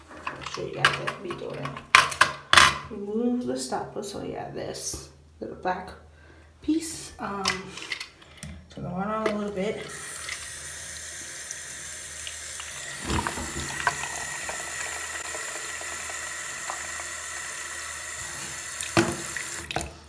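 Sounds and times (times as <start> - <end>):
faucet running into sink: 9.6 - 20.0.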